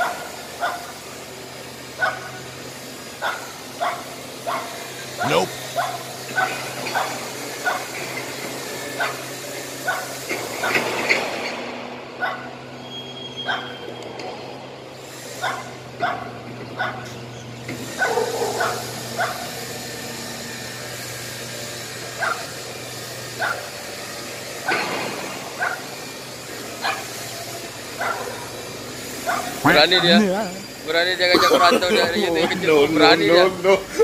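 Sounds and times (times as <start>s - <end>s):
small dogs barking: 0.0s - 1.0s, 1.9s - 8.2s, 8.9s - 10.9s, 12.2s - 12.7s, 13.4s - 13.9s, 15.3s - 19.7s, 22.1s - 22.7s, 23.3s - 23.8s, 25.5s - 26.0s, 26.6s - 30.3s.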